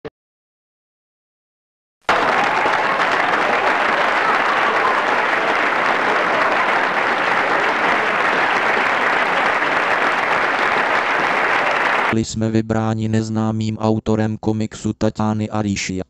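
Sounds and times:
audience applause: 2.1s - 12.2s.

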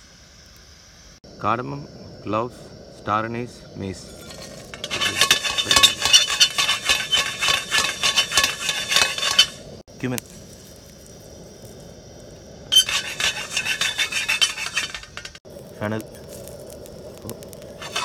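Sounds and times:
dry spices rattling in metal pan: 4.1s - 9.7s, 12.7s - 18.0s.

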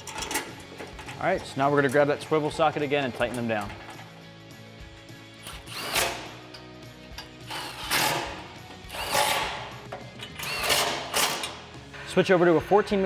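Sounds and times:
cordless ratchet driving bolts: 5.4s - 11.6s.

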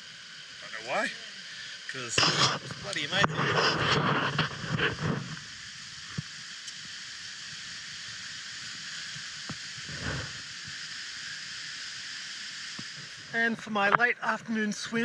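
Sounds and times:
steady high hiss: 0.0s - 15.0s
faint ticks: 4.4s - 7.6s, 8.6s - 10.9s, 12.7s - 13.1s.

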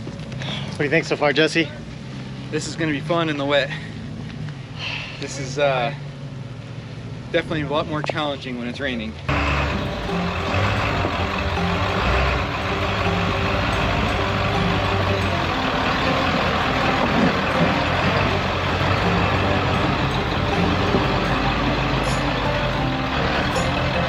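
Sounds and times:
truck engine under load: 9.2s - 24.0s.

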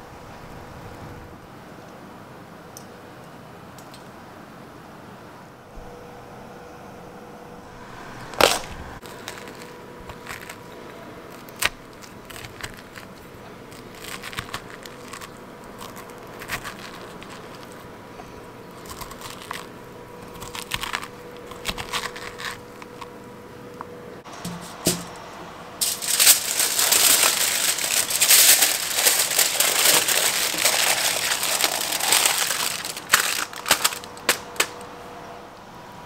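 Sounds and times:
sharp crack: 24.3s - 34.9s.

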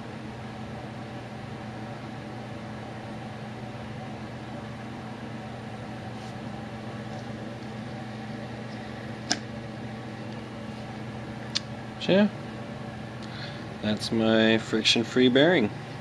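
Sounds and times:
steady hum: 0.0s - 16.0s
hand flicking fan propeller: 7.0s - 11.8s.

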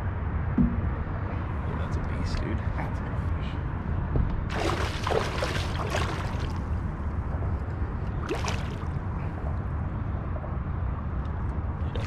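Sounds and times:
steady low rumble: 0.0s - 12.0s
fish splashing at water surface: 4.5s - 6.8s, 8.2s - 9.5s.

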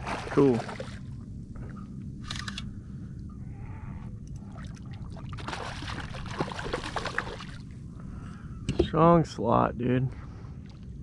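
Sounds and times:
fish thrashing and splashing: 4.6s - 7.6s.

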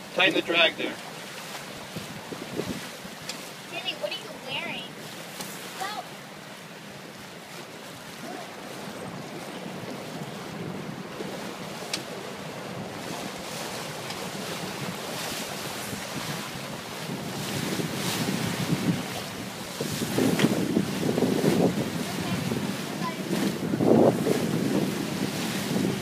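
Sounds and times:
sea water rushing and splashing: 0.0s - 26.0s
wind buffeting microphone: 1.6s - 5.1s, 8.0s - 26.0s.

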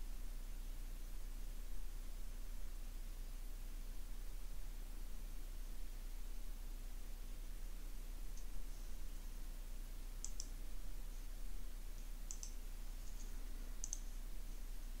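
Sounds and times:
low electrical hum: 0.0s - 15.0s
mouse buttons clicking: 10.2s - 10.6s, 12.2s - 14.1s.

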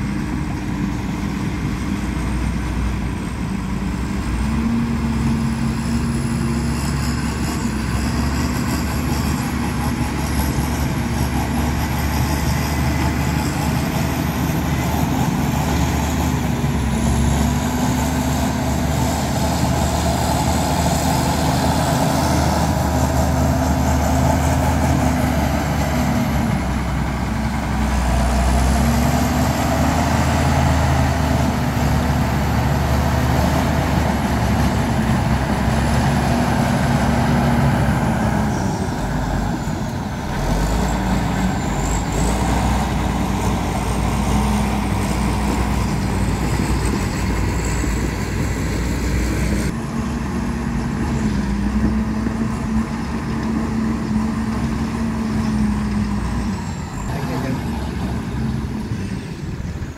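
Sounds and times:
diesel engine under load: 0.0s - 59.9s.

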